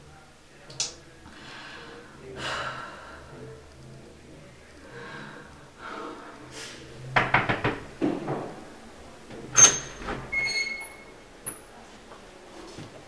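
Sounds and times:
door swinging open: 9.4s - 11.2s.

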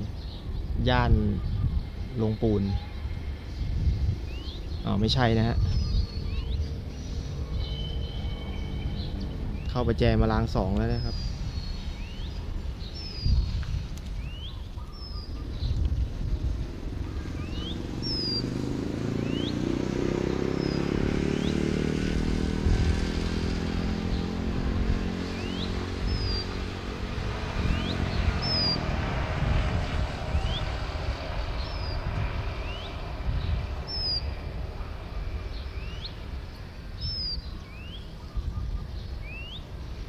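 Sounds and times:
bird chirping: 0.0s - 40.0s.

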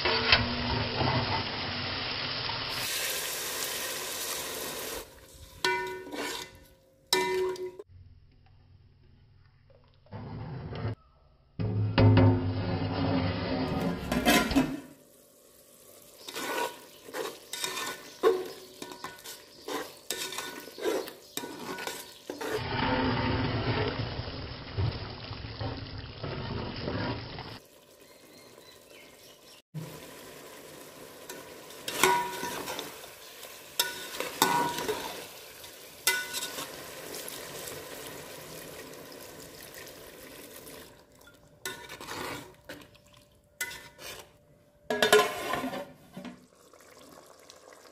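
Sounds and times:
curry sizzling: 0.0s - 7.9s, 13.6s - 47.9s
metal spatula scraping pot: 5.6s - 7.8s, 11.6s - 14.9s, 16.1s - 24.2s, 26.2s - 27.6s, 31.3s - 36.8s, 41.2s - 43.0s, 43.6s - 46.4s.

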